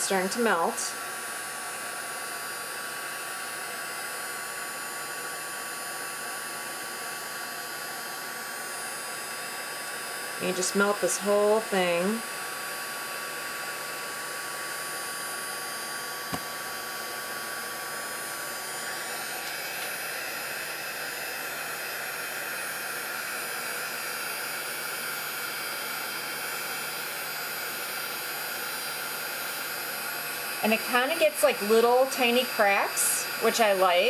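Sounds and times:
heat gun blowing air: 0.0 - 34.0.

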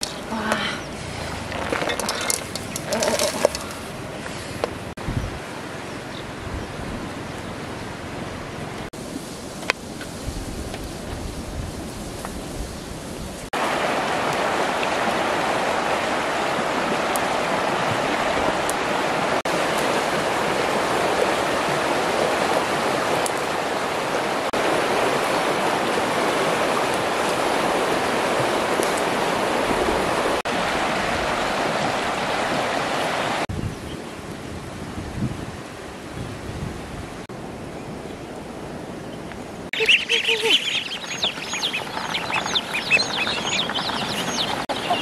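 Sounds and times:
river rushing over rapids: 13.6 - 33.5.

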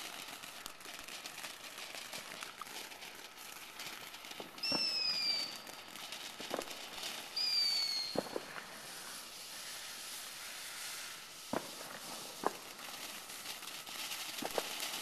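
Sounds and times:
firework crackling hiss: 0.0 - 15.0
firework whistle: 4.4 - 13.5.

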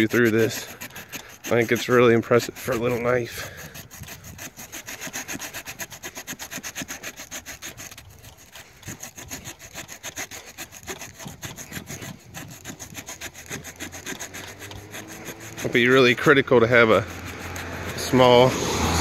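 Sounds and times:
saw cutting through tree limb: 0.0 - 19.0.

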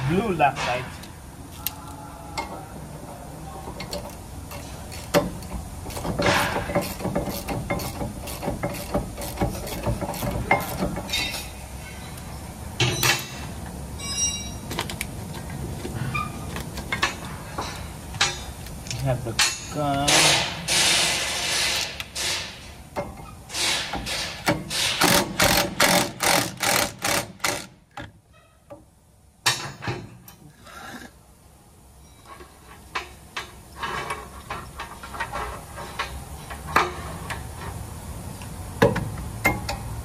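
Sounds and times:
sharp metallic knocks: 5.1 - 11.5, 12.8 - 14.6, 19.4 - 27.7
ringing metal clank: 12.8 - 13.4, 14.0 - 14.7
metal tools clinking: 12.8 - 14.7.

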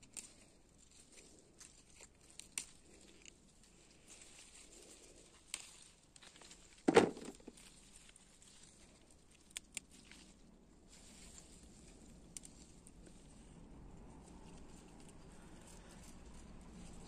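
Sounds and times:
plant leaves rustling: 0.0 - 17.0
loud thump: 6.9 - 7.3.

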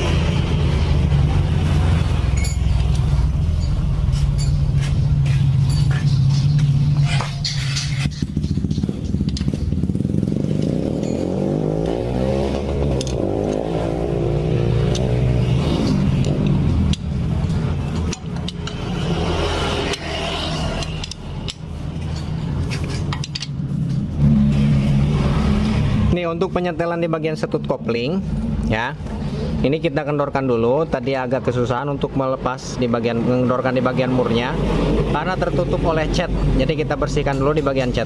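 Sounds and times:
engine running: 0.0 - 26.2
hand tools clicking on metal: 2.4 - 9.8, 11.8 - 13.7, 14.8 - 23.6.

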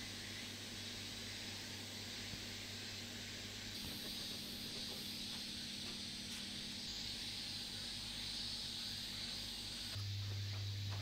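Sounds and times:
high background hiss: 0.0 - 11.0.

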